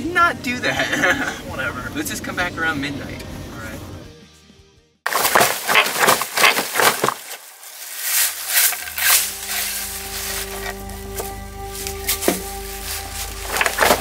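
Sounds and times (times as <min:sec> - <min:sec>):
dry leaves crunching: 0:05.1 - 0:14.0
leaves rustling: 0:05.1 - 0:14.0
low musical drone: 0:08.7 - 0:14.0.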